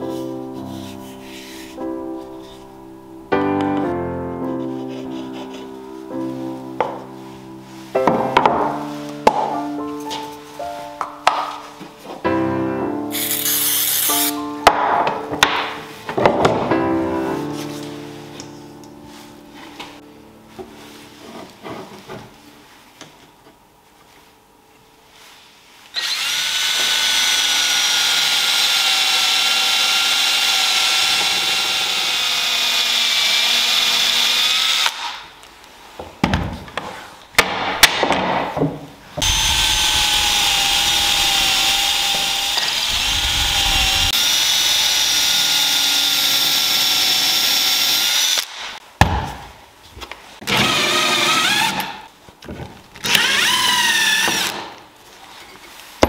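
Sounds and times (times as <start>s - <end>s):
electric drill boring into wood: 13.1s - 14.4s, 26.0s - 35.2s, 39.2s - 48.7s, 50.4s - 52.0s, 53.0s - 54.7s
countersink bit cutting: 39.2s - 48.6s.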